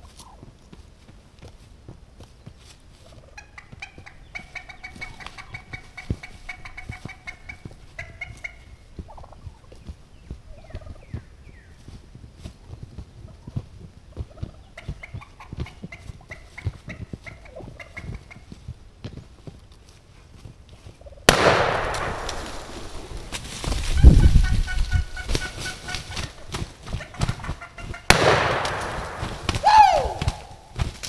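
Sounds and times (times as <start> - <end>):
turkey rattling calls: 0.1 - 0.4, 3.0 - 11.9, 13.2 - 18.6, 21.0 - 30.8
wing thumps and blows: 21.3 - 31.0
scuffling in dry leaves: 21.8 - 28.0.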